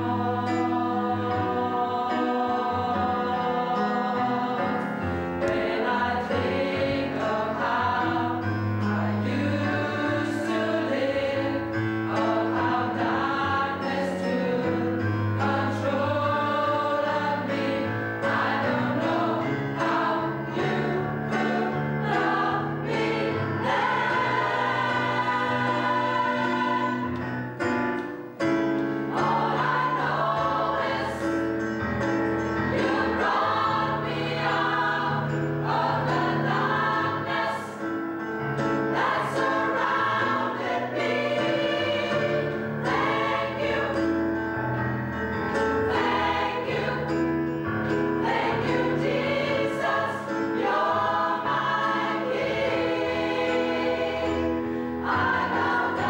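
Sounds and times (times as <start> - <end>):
choir breaths: 0.0 - 8.4, 14.7 - 27.2, 48.2 - 56.0
choir singing sustained phrases: 0.0 - 44.7, 45.3 - 56.0.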